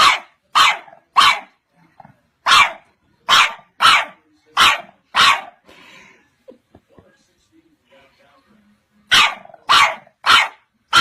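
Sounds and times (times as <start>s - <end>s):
puppy barking: 0.0s - 1.6s, 2.4s - 5.6s, 9.1s - 11.0s.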